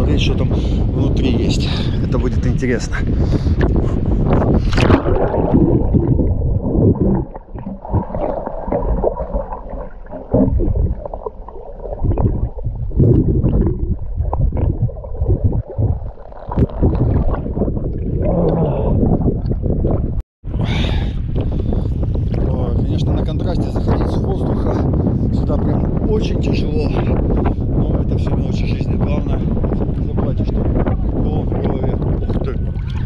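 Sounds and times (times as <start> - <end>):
underwater rumble: 0.0 - 33.0
water splashing: 3.4 - 20.2, 32.5 - 33.0
underwater knocks and bubbles: 3.5 - 20.2, 27.4 - 33.0.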